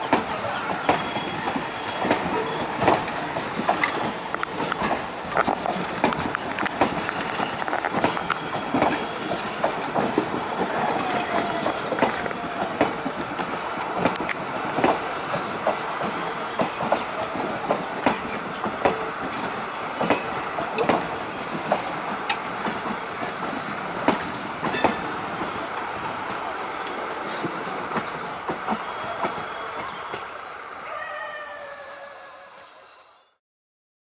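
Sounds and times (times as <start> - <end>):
train wheels clattering over rail joints: 0.0 - 26.5.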